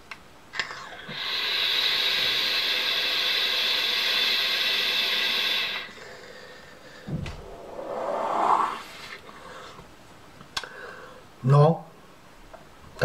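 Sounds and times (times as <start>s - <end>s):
hiss of air through vaporizer: 1.0s - 5.9s.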